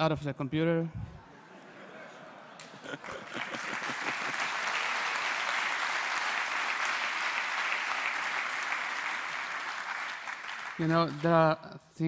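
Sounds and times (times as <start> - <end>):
audience applauding: 2.6 - 11.5.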